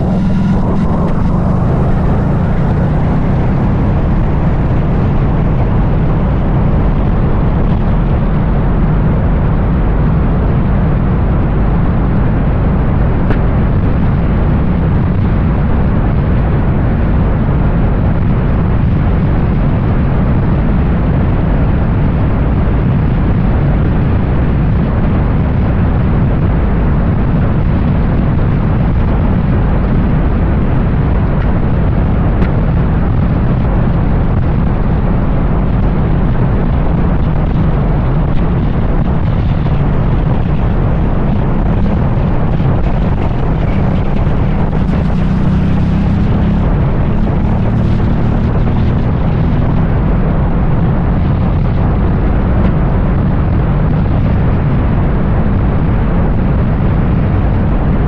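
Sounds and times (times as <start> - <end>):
motorcycle engine running: 0.0 - 57.8
wind rumble on microphone: 0.0 - 58.0.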